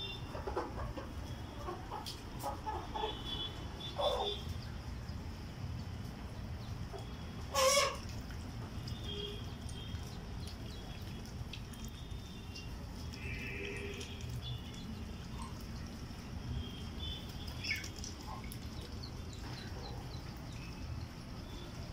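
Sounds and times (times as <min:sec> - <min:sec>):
hen squawking cluck: 0:07.5 - 0:08.0.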